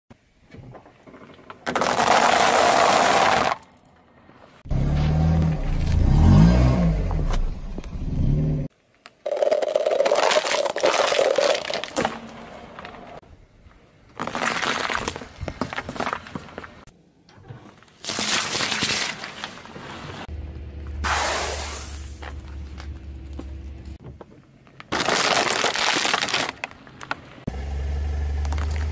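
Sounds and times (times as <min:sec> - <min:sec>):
plastic cups crunching: 0:01.7 - 0:03.6, 0:09.1 - 0:12.8, 0:14.2 - 0:16.4, 0:24.9 - 0:27.2.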